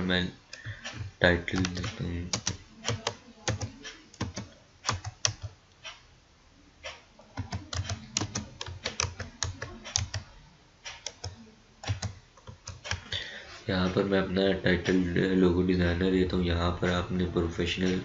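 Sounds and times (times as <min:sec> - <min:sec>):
typing on computer keyboard: 0:00.5 - 0:05.6, 0:07.4 - 0:10.3, 0:10.9 - 0:13.1.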